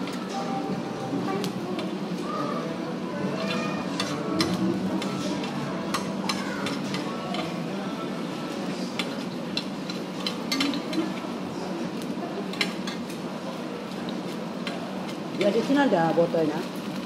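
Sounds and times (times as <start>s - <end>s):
murmur of voices: 0.0s - 17.0s
cutlery and dishes clinking: 3.3s - 7.7s, 8.5s - 11.3s, 12.4s - 13.2s.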